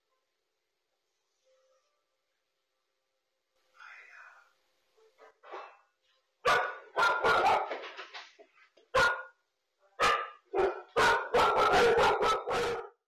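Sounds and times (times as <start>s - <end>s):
dog barking sharply: 6.4s - 7.9s, 8.9s - 9.4s, 10.0s - 13.0s.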